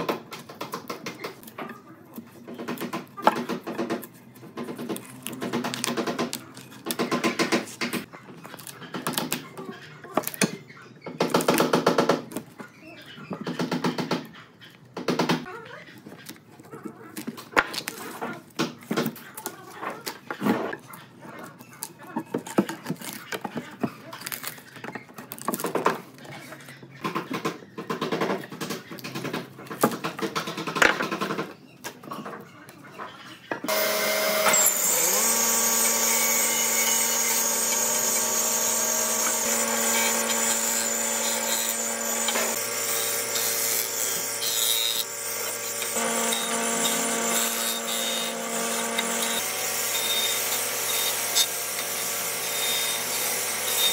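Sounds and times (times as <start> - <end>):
power tool running: 33.7 - 53.9.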